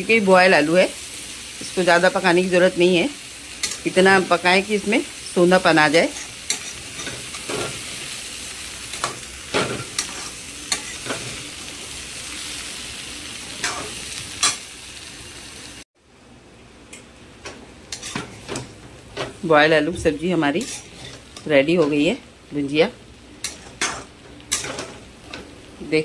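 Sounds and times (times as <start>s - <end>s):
potatoes sizzling in oil: 0.0s - 15.9s, 17.7s - 26.0s
spoon scraping and knocking on pan: 9.0s - 11.4s, 17.4s - 19.4s.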